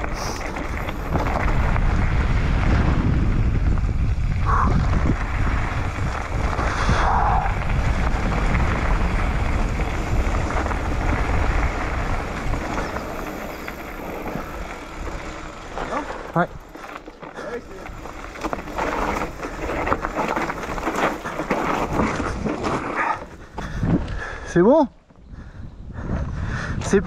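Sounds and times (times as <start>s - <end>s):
wind buffeting microphone: 0.0s - 22.6s, 23.3s - 27.0s
tyres rumbling on dirt: 0.0s - 24.3s
bike rattling: 0.0s - 26.7s.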